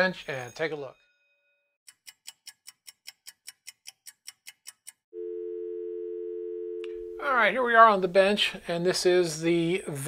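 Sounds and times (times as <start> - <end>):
sharp ticking clicks: 1.9 - 5.1
telephone dial tone: 5.2 - 7.2.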